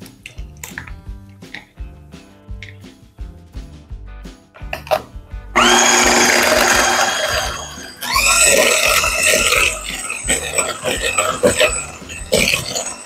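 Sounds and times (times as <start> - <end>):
electric hand mixer whirring: 5.6 - 13.0.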